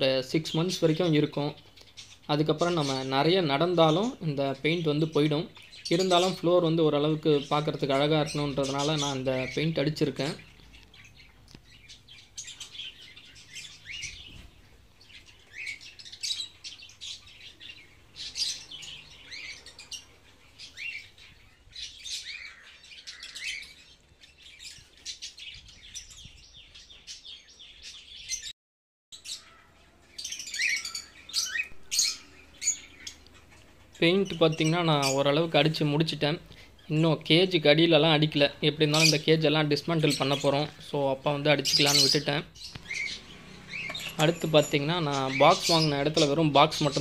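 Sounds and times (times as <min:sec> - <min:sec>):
lovebirds chirping: 0:00.0 - 0:28.6, 0:29.2 - 0:47.0.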